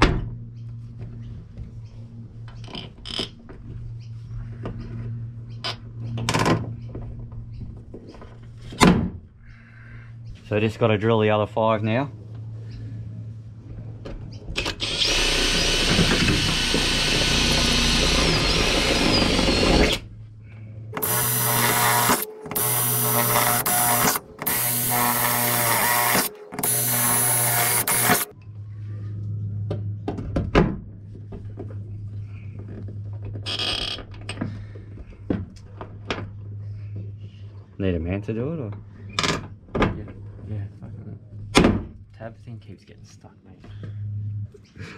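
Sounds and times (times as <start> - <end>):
power drill boring through metal: 14.6 - 20.0, 21.0 - 28.3.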